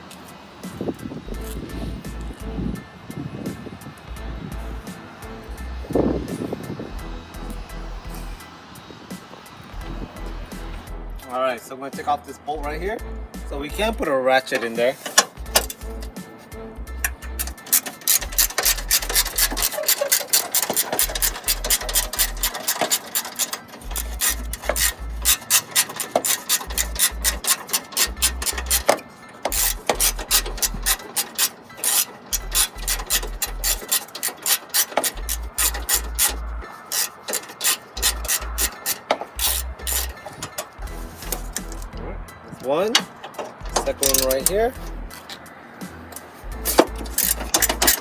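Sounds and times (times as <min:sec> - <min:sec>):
socket ratchet clicking: 0:14.6 - 0:16.2, 0:17.0 - 0:42.0, 0:42.9 - 0:45.5, 0:46.1 - 0:48.0.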